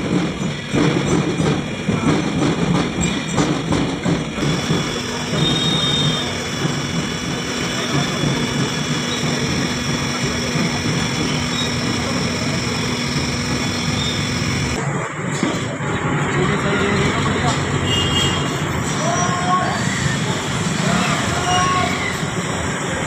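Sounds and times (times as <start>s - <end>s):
street noise: 0.0s - 23.0s
blender motor running: 4.4s - 14.8s.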